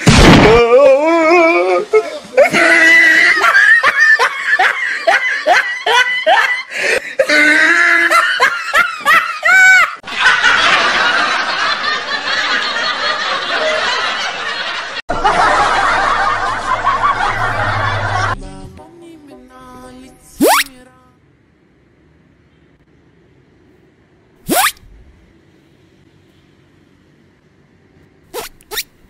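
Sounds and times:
many voices laughing: 1.4 - 18.4
high-pitched laughter bursts: 1.8 - 10.0.

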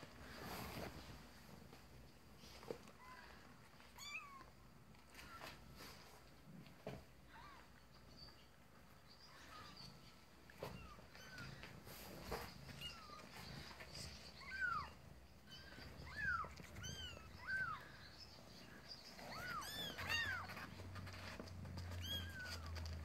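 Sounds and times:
kittens mewing: 9.2 - 23.0.

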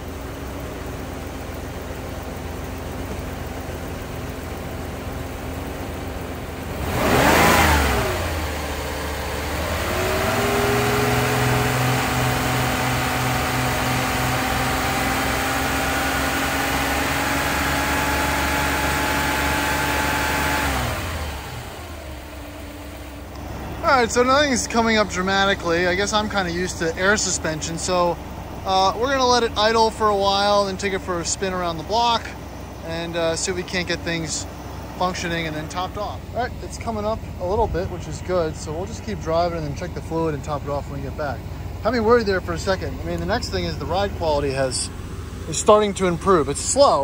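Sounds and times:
car engine idling and revving: 0.0 - 47.0.

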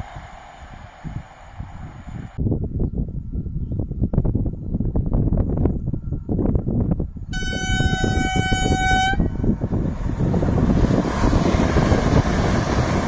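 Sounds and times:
train rushing past: 0.0 - 2.4, 8.0 - 13.0
train horn blast: 7.3 - 9.5.

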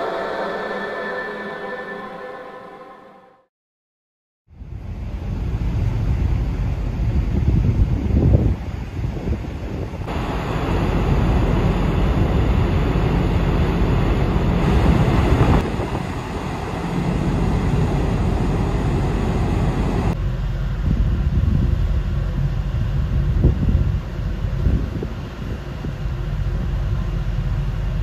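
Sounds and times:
low rumble of ship machinery: 4.5 - 28.0
wind on microphone: 4.6 - 28.0.

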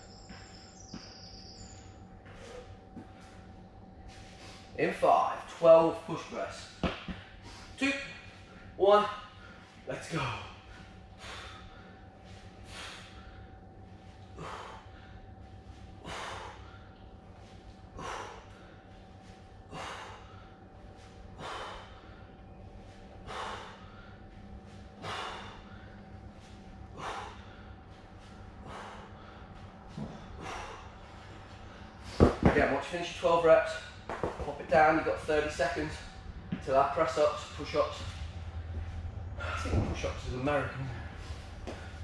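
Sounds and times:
man exhaling forcefully: 25.0 - 25.8.

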